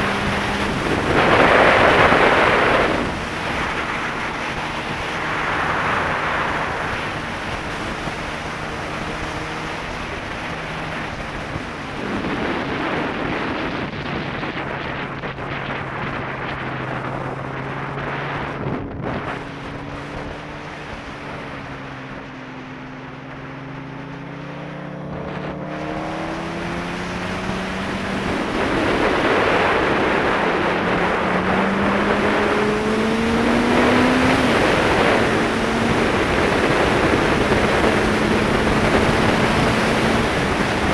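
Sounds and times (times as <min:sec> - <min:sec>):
motorcycle engine accelerating: 0:00.0 - 0:40.9
wind rush on microphone: 0:00.0 - 0:40.9.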